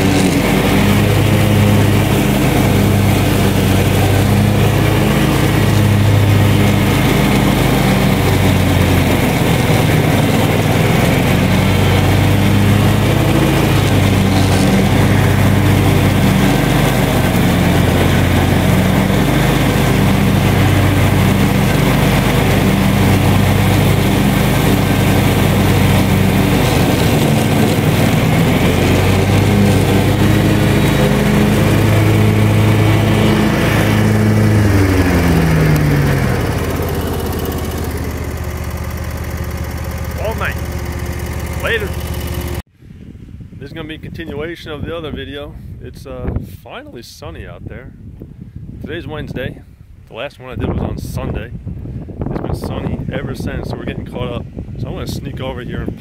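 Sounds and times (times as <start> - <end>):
riding mower engine cutting grass: 0.0 - 42.7.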